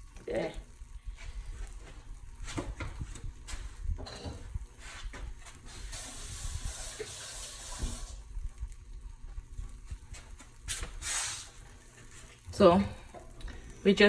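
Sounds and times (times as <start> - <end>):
fish sizzling on a baking tray: 4.6 - 9.0, 9.8 - 12.8.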